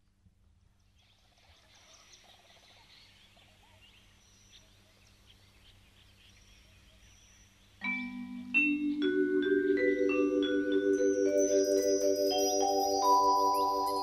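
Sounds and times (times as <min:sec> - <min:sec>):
faint outdoor chirping: 0:00.0 - 0:14.0
low steady hum: 0:00.0 - 0:14.0.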